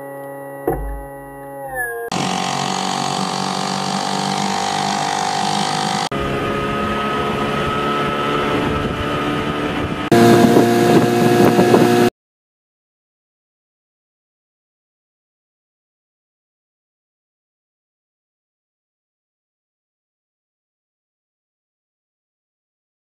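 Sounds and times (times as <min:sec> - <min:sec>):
small outboard motors running: 0:00.0 - 0:12.1.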